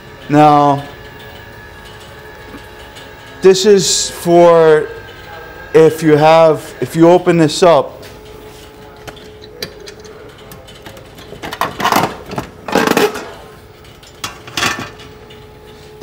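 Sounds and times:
steady low hum: 0:00.0 - 0:16.0
access panel rattling clatters: 0:09.0 - 0:15.2.

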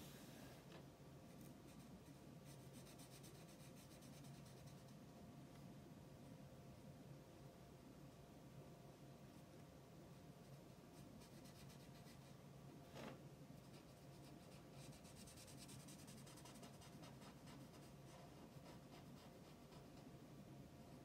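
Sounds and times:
low steady hum: 0:00.0 - 0:21.0
marker scratching on paper: 0:13.6 - 0:20.0.

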